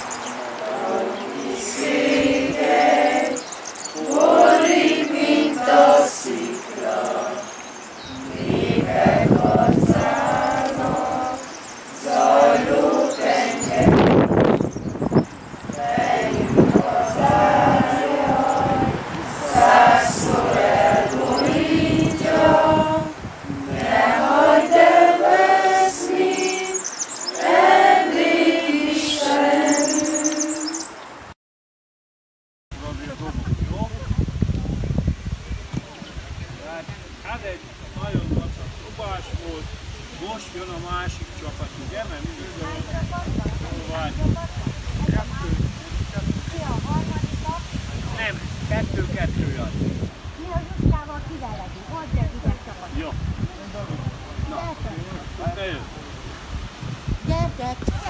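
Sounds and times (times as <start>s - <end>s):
group of people singing: 0.0s - 30.9s.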